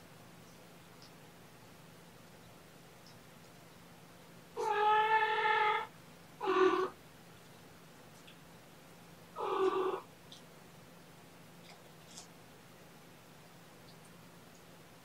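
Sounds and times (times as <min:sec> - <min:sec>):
cat meowing: 0:04.6 - 0:07.0, 0:09.4 - 0:10.0.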